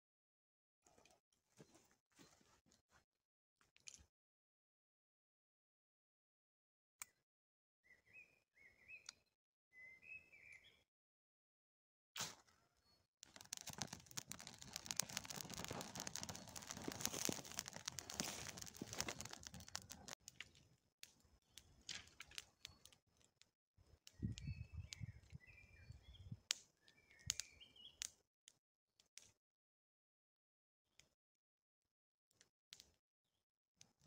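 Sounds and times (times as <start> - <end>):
bird chirps: 7.8 - 10.8, 24.1 - 28.0
pine needles and twigs crackling in fire: 13.2 - 28.2.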